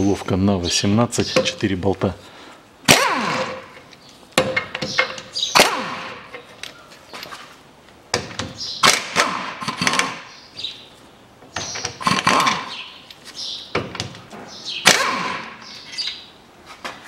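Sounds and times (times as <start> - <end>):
metallic clanks and knocks: 4.4 - 5.4.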